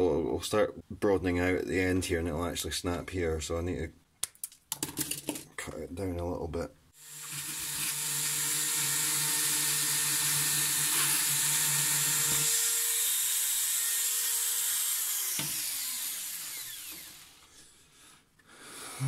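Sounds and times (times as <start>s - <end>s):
handheld drill whining: 7.0s - 17.6s.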